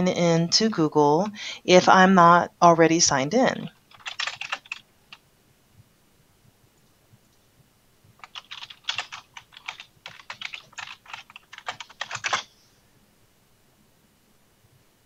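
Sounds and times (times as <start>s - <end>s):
computer keyboard typing: 3.7s - 5.2s, 8.2s - 12.5s.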